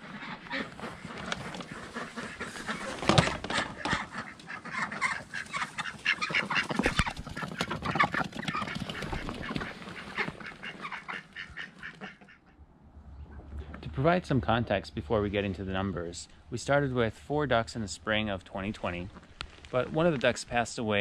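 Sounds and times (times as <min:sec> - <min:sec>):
ducks quacking: 0:00.0 - 0:12.6.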